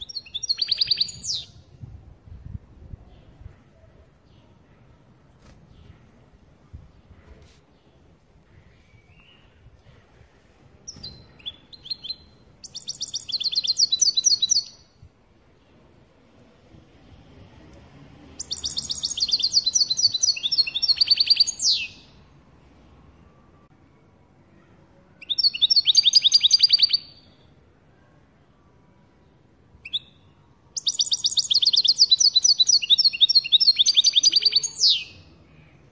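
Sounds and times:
goldfinch chirping and twittering: 0:18.4 - 0:22.0.

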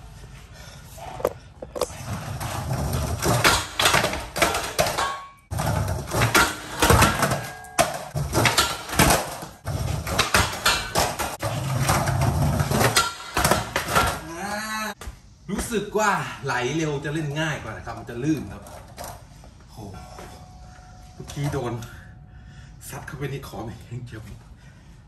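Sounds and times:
skateboard wheels rolling on tiles: 0:00.8 - 0:15.0.

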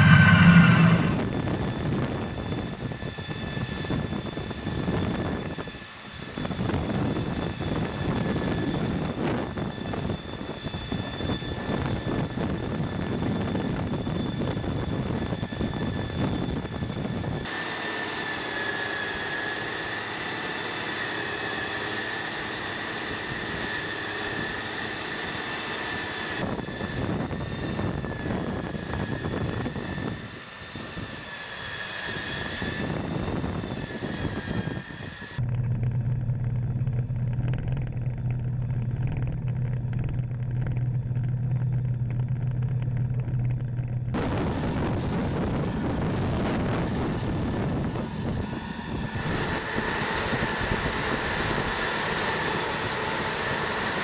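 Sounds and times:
machine engine rumble: 0:00.0 - 0:01.8, 0:32.7 - 0:46.3
high steady machine whine: 0:00.0 - 0:54.0.

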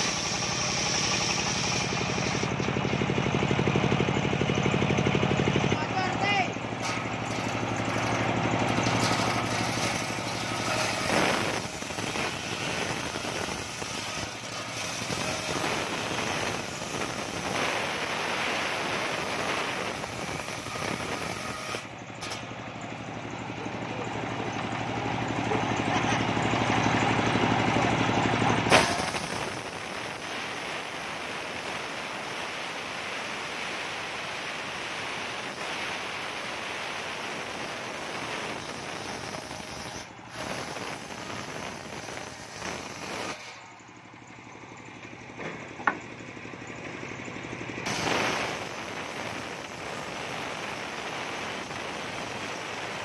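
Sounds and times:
circular saw ripping wood: 0:00.0 - 0:03.0, 0:06.2 - 0:22.5, 0:28.7 - 0:43.7, 0:47.9 - 0:53.0
engine low hum: 0:00.0 - 0:53.0.

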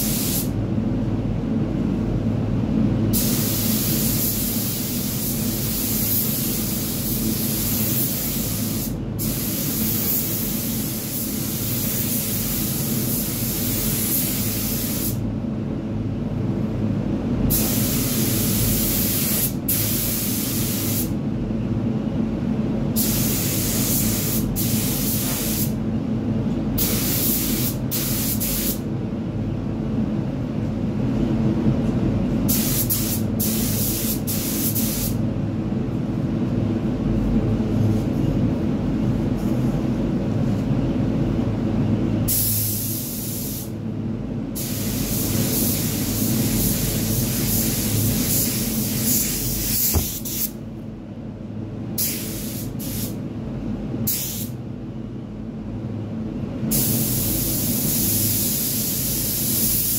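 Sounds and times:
steady low hum: 0:00.0 - 0:59.9
paint spray gun hissing: 0:44.6 - 0:50.5.

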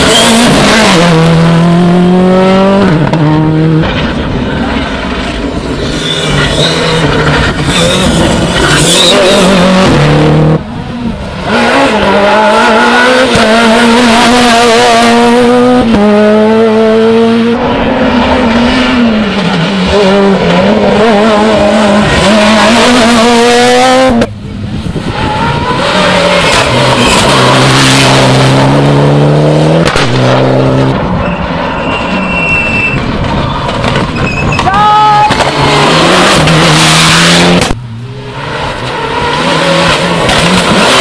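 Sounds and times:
rally car engine at high revs: 0:00.0 - 0:34.3, 0:35.3 - 0:41.0.

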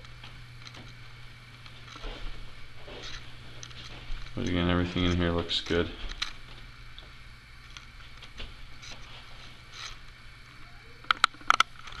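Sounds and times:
faint rustle: 0:00.0 - 0:06.7, 0:07.8 - 0:10.2
low hum: 0:00.0 - 0:12.0.

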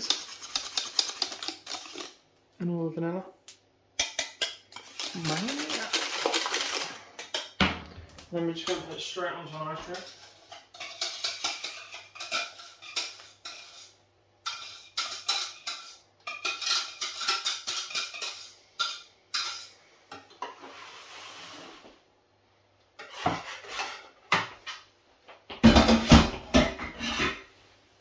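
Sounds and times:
whisk beating cream: 0:00.0 - 0:02.1, 0:04.4 - 0:07.0
utensil scraping metal saucepan: 0:00.0 - 0:02.2, 0:04.0 - 0:07.6, 0:08.3 - 0:22.0, 0:23.0 - 0:24.3, 0:26.7 - 0:27.5.

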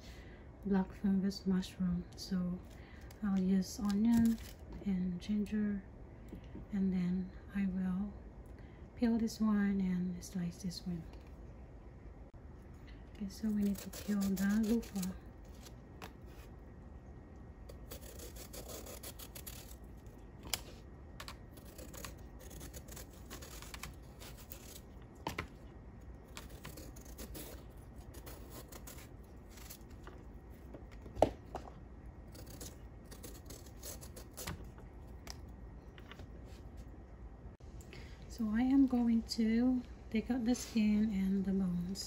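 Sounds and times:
knife scraping vegetable skin: 0:13.4 - 0:16.5, 0:17.7 - 0:25.5, 0:26.3 - 0:30.2, 0:32.3 - 0:34.7.

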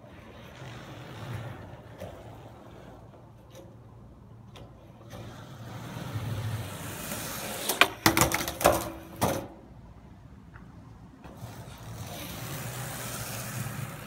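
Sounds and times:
skateboard rolling on concrete: 0:00.0 - 0:14.0
skateboard clacking on concrete: 0:00.4 - 0:03.9, 0:04.5 - 0:09.6.

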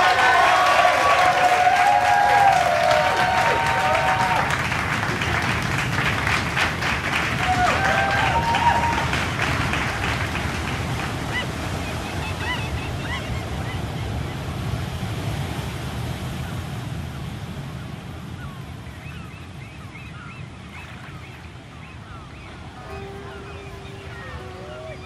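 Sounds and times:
ocean surf washing: 0:00.0 - 0:25.0
short high calls: 0:22.1 - 0:25.0.

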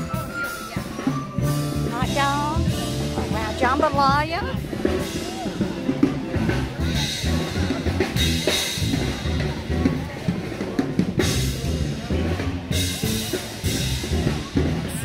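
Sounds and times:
bass drum: 0:00.0 - 0:15.0
live band playing: 0:00.0 - 0:15.0.

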